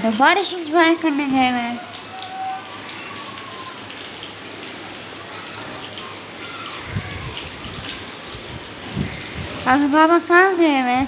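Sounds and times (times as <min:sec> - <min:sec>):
heavy rain on concrete roof: 0:00.0 - 0:11.0.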